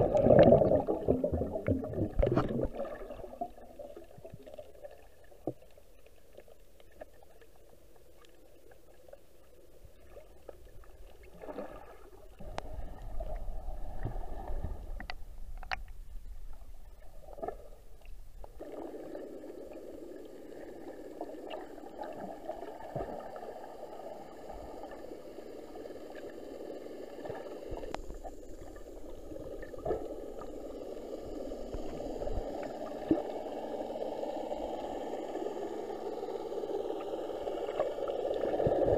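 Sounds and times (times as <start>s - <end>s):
steady hiss: 12.1s - 38.9s
underwater clicks: 15.0s - 16.1s.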